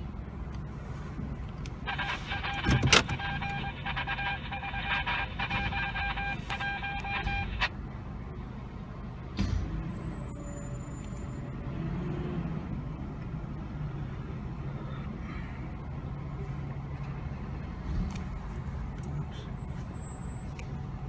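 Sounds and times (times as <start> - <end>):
diesel engines idling: 0.0 - 21.0
backup alarm: 1.8 - 7.7.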